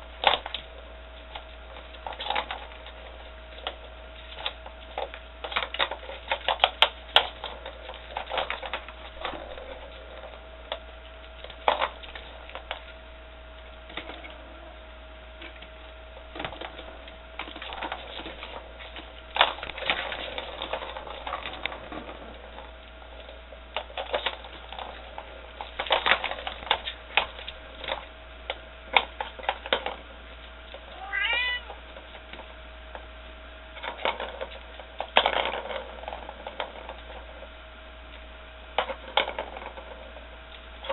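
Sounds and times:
paws clattering on plastic toy: 0.1s - 40.9s
kitten meowing: 31.0s - 31.7s.

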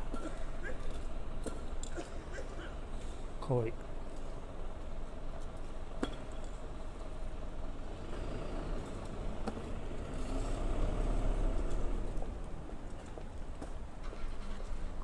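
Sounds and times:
vehicle engine rumble: 2.6s - 15.0s.

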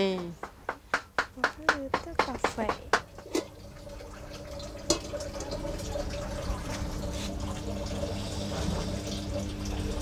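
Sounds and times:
metal cookware clanking: 3.2s - 3.6s.

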